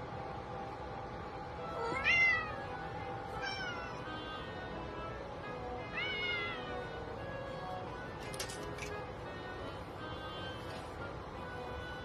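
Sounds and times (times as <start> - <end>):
background music: 1.6 - 12.0
cat meowing: 1.7 - 2.8, 3.4 - 4.2, 5.9 - 6.9.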